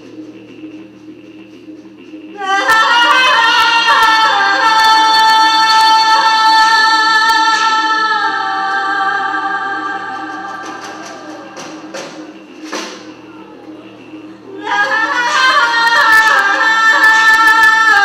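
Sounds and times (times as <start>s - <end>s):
woman singing a long note: 2.4s - 18.0s.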